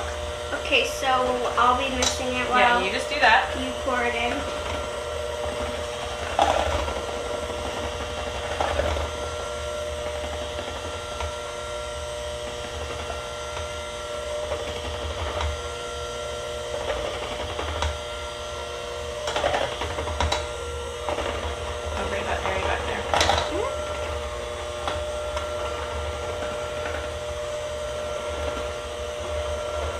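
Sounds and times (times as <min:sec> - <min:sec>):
electric hand mixer whirring: 0:00.0 - 0:29.9.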